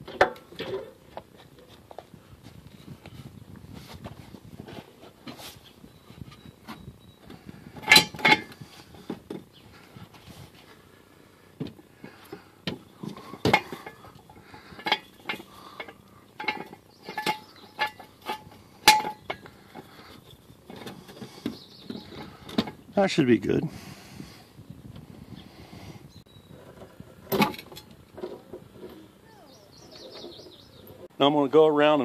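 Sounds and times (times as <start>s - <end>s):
metallic clinks and knocks: 6.2s - 9.1s, 12.7s - 22.8s.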